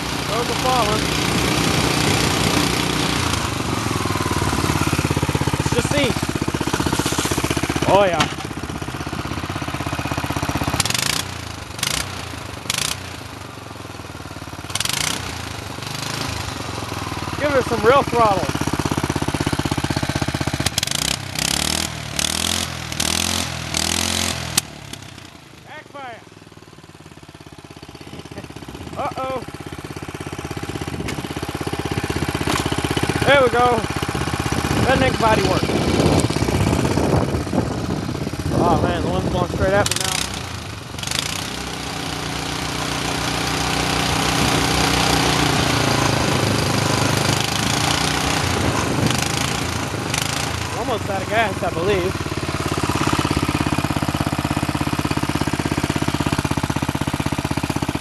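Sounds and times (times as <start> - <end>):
go-kart engine revving: 0.0 - 58.0
engine backfire pop: 6.6 - 8.7, 30.9 - 31.4, 32.4 - 33.1.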